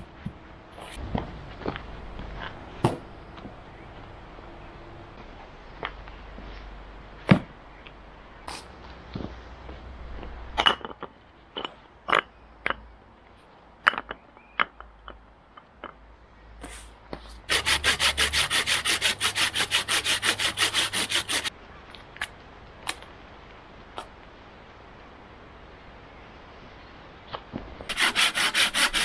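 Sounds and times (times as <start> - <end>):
hand saw cutting a branch: 17.5 - 21.5, 27.9 - 29.0.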